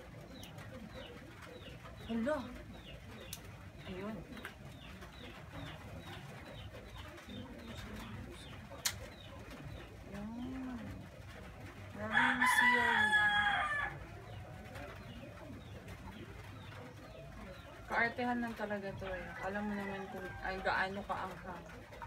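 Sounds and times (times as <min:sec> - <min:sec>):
birds cooing: 0:00.0 - 0:22.0
rooster crowing: 0:12.1 - 0:14.0.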